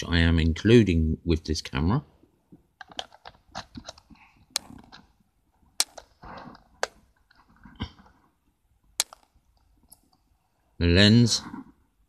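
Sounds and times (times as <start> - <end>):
small plastic clicks and taps: 5.8 - 8.0, 9.0 - 10.2.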